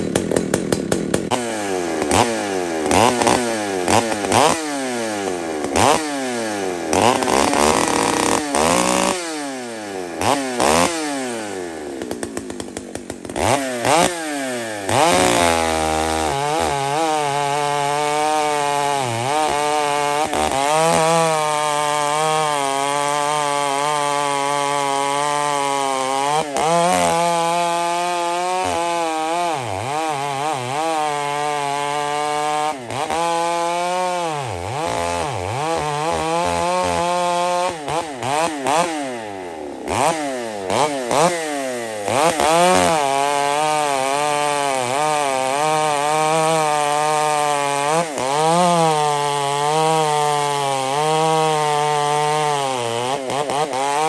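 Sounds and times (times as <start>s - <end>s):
chainsaw revving and cutting log: 0.0s - 54.0s.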